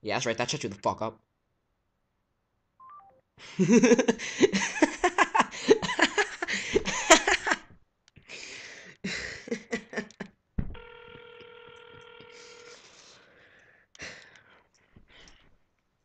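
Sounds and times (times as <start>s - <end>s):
electronic beeps: 2.8s - 3.2s
young man laughing: 3.4s - 7.7s, 9.0s - 10.4s.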